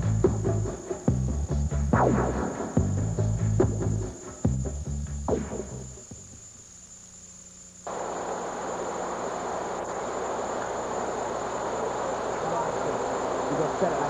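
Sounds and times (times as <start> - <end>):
music: 0.0 - 6.5.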